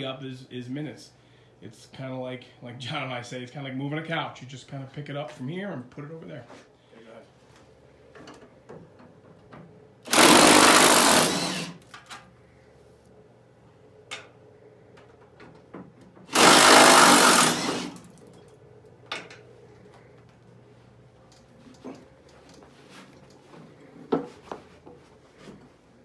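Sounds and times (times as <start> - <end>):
cordless impact gun: 10.1 - 11.8, 16.3 - 18.1.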